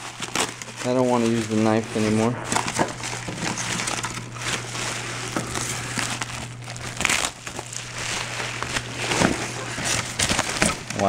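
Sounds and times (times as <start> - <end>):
bubble wrap crinkling: 0.0 - 11.0.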